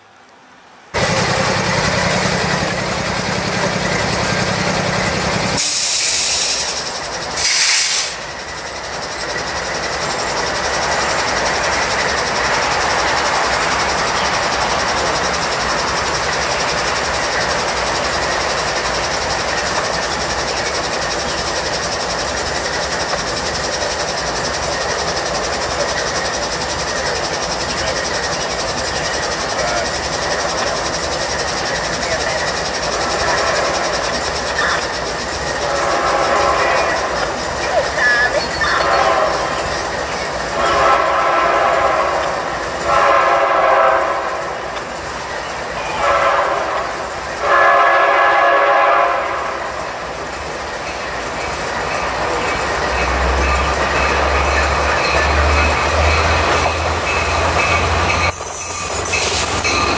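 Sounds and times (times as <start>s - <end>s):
diesel locomotive rumbling: 0.0s - 59.9s
air hissing bursts: 5.5s - 8.8s.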